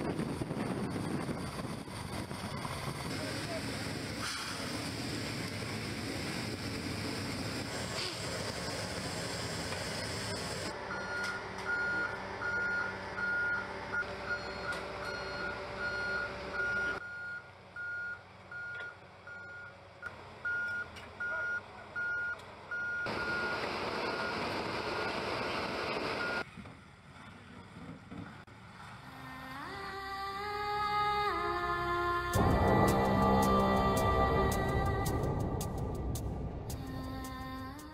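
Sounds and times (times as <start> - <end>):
engine rumble: 0.0 - 37.9
vehicle reversing alarm beeping: 10.3 - 19.8, 20.4 - 25.2, 26.2 - 26.5
music: 32.3 - 37.9.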